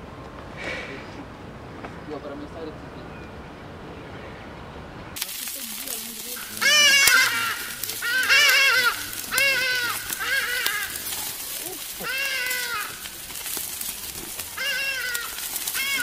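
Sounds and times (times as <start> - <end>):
wood fire crackling and sizzling: 5.2 - 16.0
goat bleating: 6.3 - 16.0.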